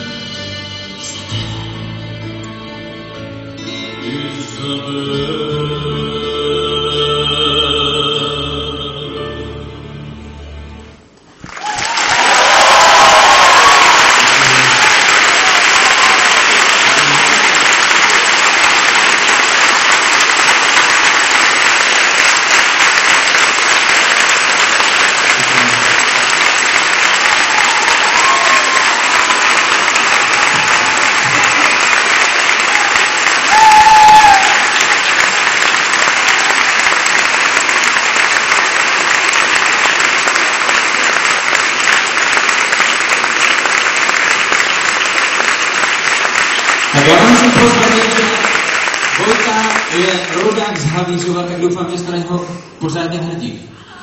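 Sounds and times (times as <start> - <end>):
audience applauding: 11.4 - 52.2.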